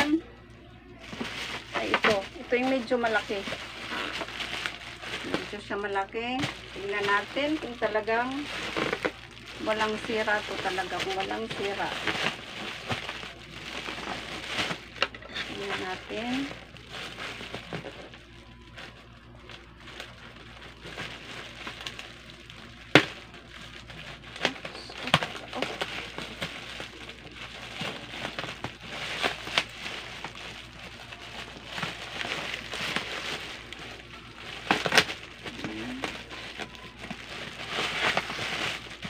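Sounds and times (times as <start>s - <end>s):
plastic mailer crinkling: 1.0s - 39.0s
scissors cutting plastic: 34.6s - 38.8s.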